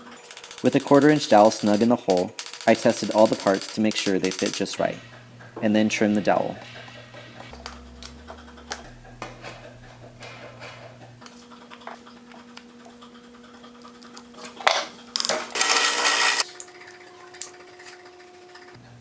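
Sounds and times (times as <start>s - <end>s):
small wooden parts clicking: 0.1s - 4.8s.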